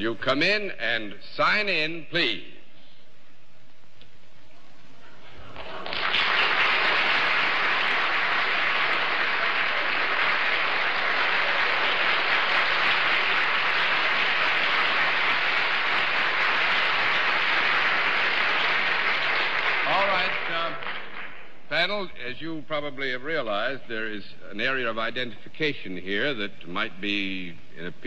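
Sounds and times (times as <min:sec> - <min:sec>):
studio audience applauding: 0:05.6 - 0:21.5.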